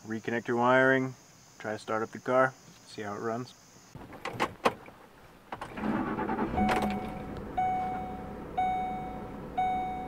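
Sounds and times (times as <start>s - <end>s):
engine cranking and idling: 5.5s - 10.0s
dashboard warning chime: 6.4s - 10.0s.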